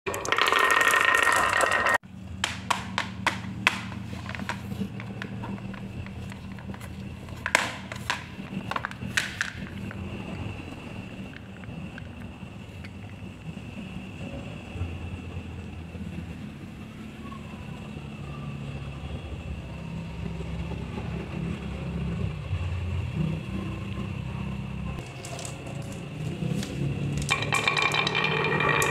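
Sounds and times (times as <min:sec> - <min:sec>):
marbles rattling down wooden pegboard: 0:00.1 - 0:13.3, 0:25.0 - 0:26.2, 0:27.0 - 0:28.9.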